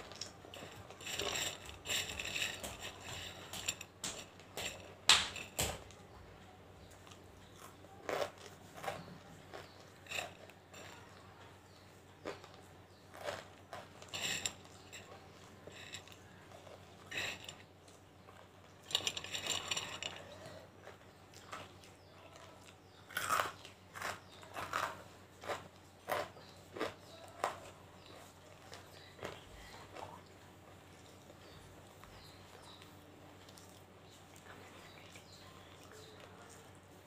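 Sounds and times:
hard pieces crunched between teeth: 0:23.1 - 0:27.6.

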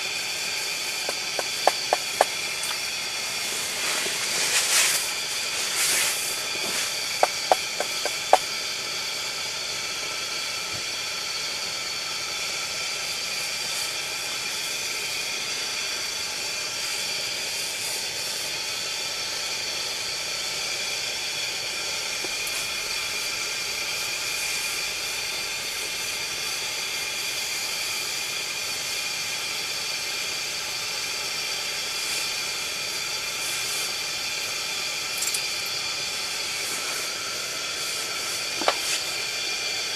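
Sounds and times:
pressure burner hissing: 0:00.0 - 0:39.9
sharp clicks: 0:01.0 - 0:02.8, 0:07.2 - 0:08.4.

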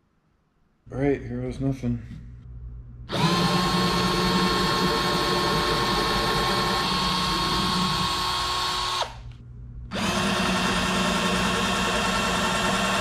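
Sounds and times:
power drill boring wood: 0:03.1 - 0:09.2, 0:09.9 - 0:13.0.

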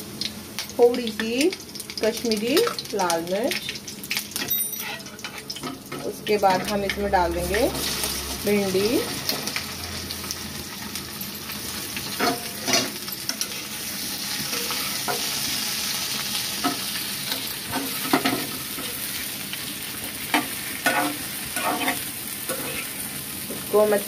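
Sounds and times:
okra sizzling in hot oil: 0:00.0 - 0:24.0
spoon clinking and scraping pan: 0:04.4 - 0:07.0, 0:20.3 - 0:23.0.

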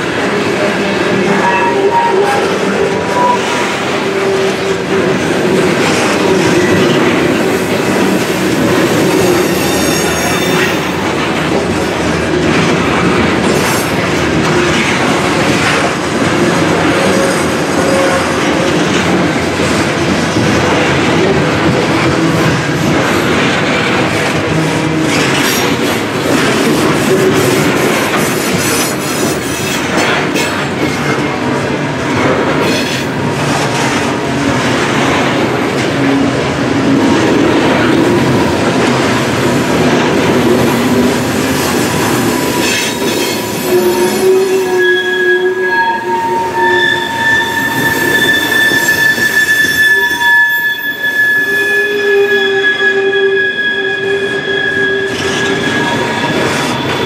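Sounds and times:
train wheels rumbling on rails: 0:00.0 - 0:57.0
wheels squealing: 0:01.2 - 0:11.1, 0:40.0 - 0:57.0.

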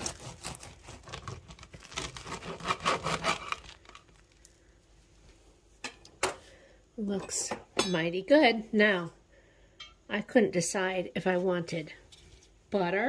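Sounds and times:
knife sawing through bread: 0:00.0 - 0:03.8.

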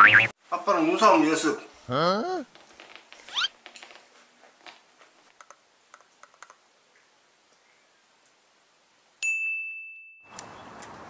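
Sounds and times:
outdoor background noise: 0:00.0 - 0:11.0
bright bell ding: 0:09.2 - 0:10.3.

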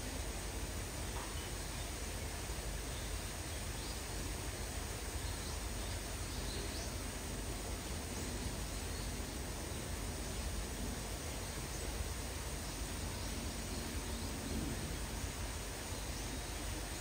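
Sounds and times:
light rain hissing: 0:00.0 - 0:17.0
low background rumble: 0:00.0 - 0:17.0.

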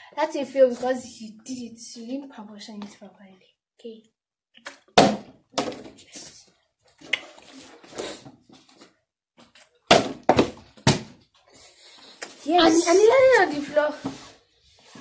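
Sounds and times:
plastic bottle thunking on wooden table: 0:04.9 - 0:05.9, 0:09.9 - 0:11.2.

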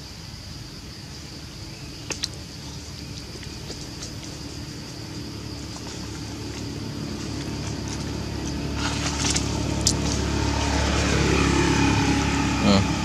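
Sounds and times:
engine humming: 0:01.3 - 0:13.0.

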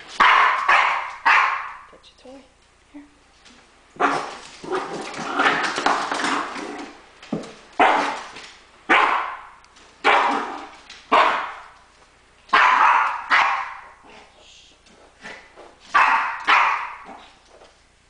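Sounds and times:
small dog barking: 0:00.2 - 0:01.9, 0:04.0 - 0:04.4, 0:07.8 - 0:08.2, 0:08.9 - 0:11.7, 0:12.5 - 0:14.0, 0:15.9 - 0:17.2.

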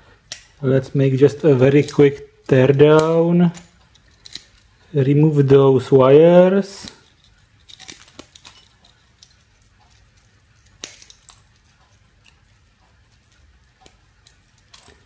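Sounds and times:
side cutters snipping wire: 0:01.3 - 0:04.6.

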